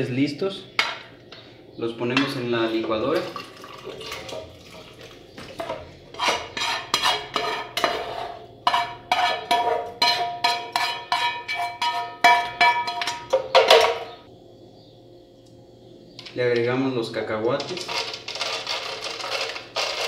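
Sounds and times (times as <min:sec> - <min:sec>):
frying pan scraping: 0:02.2 - 0:14.2, 0:17.6 - 0:20.0.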